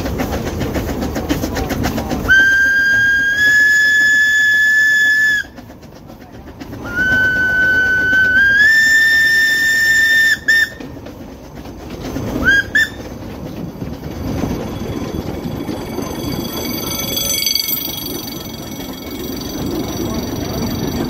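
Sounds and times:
carriages rumbling along track: 0:00.0 - 0:21.0
steam locomotive whistle: 0:02.3 - 0:05.6, 0:06.8 - 0:10.9, 0:12.4 - 0:13.0.

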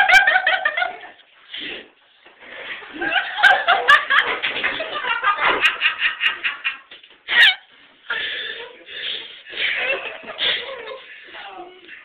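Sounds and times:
people laughing: 0:00.0 - 0:01.2, 0:02.9 - 0:07.7, 0:09.5 - 0:11.4.

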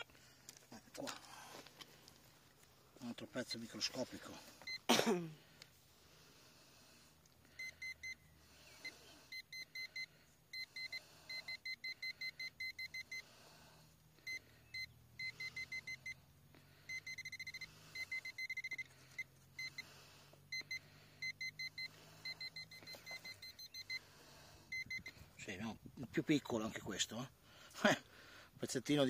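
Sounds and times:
metal detector beeping: 0:07.6 - 0:08.2, 0:08.8 - 0:13.2, 0:14.2 - 0:16.2, 0:16.9 - 0:19.9, 0:20.5 - 0:25.3.

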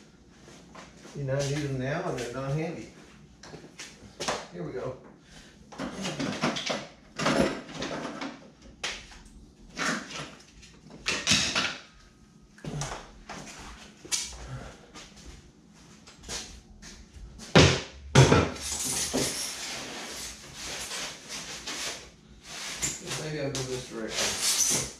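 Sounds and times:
loud knocks: 0:17.5 - 0:18.6.

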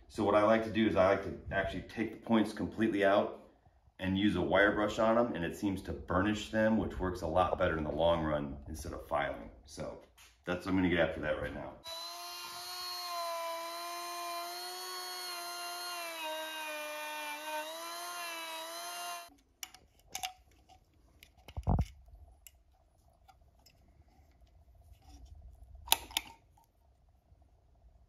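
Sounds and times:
rotary tool whining: 0:11.8 - 0:19.4.

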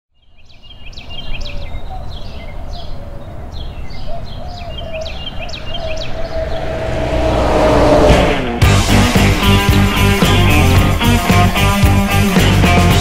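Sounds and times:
birds singing: 0:00.1 - 0:06.8
low rumble: 0:05.7 - 0:09.8.

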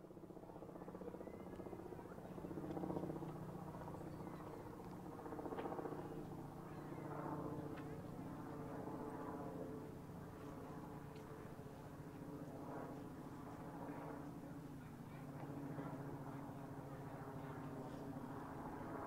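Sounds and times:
faint voices murmuring: 0:00.0 - 0:19.0.

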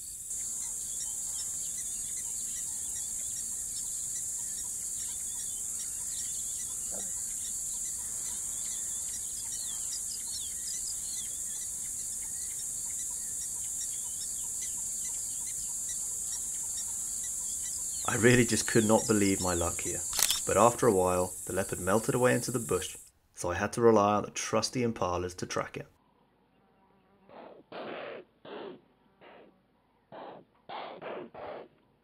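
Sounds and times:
bird chirps: 0:00.0 - 0:23.0
insects chorus: 0:00.0 - 0:24.9.

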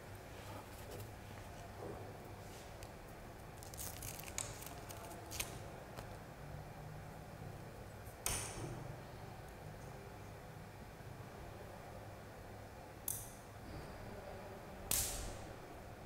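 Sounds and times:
razor clicks and rustles: 0:03.6 - 0:06.2.

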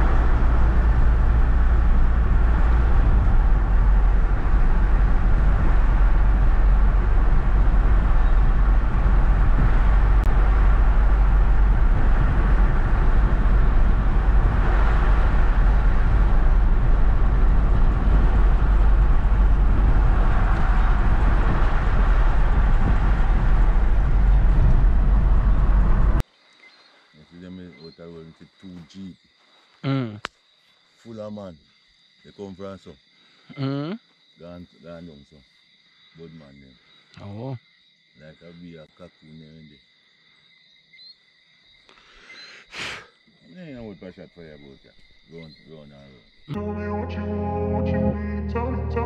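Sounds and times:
car cabin road and engine rumble: 0:00.0 - 0:26.2.

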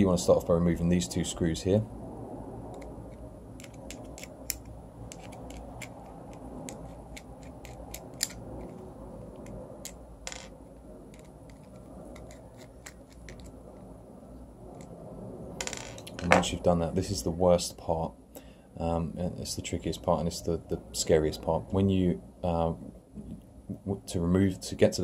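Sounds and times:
screwdriver clicking and scratching screws: 0:03.6 - 0:10.0, 0:11.1 - 0:13.6.

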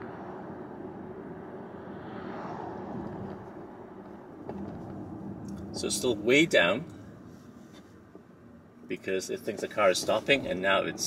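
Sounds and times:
road and tyre noise in car: 0:00.0 - 0:11.0.

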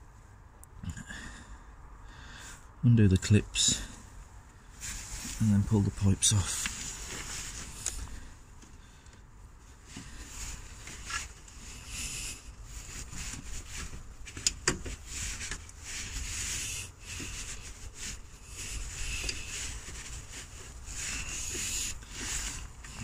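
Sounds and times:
hands rubbing among hoses: 0:04.8 - 0:08.8, 0:09.6 - 0:23.0.

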